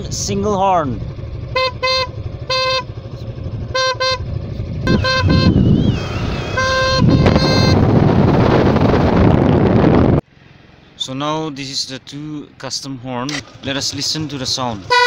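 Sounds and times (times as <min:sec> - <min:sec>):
motorcycle engine: 0:00.0 - 0:11.0, 0:13.2 - 0:15.0
road noise: 0:00.0 - 0:15.0
motorcycle horn toots: 0:01.4 - 0:08.0, 0:14.8 - 0:15.0.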